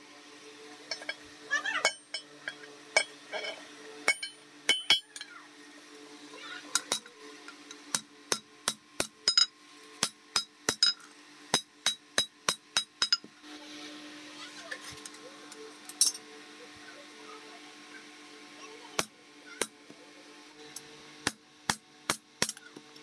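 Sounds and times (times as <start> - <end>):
hammer striking steel on anvil: 4.0 - 5.3, 6.8 - 7.1, 7.9 - 13.3, 21.2 - 22.8.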